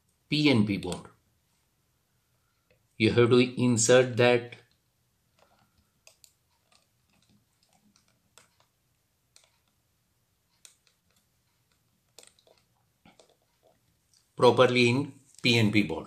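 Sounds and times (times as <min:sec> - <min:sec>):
faint clicks and scrapes: 0:04.7 - 0:09.8, 0:10.4 - 0:14.4.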